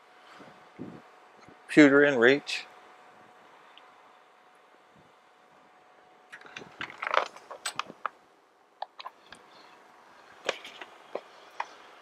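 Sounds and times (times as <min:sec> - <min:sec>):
cables and connectors clicking: 0:06.3 - 0:08.2.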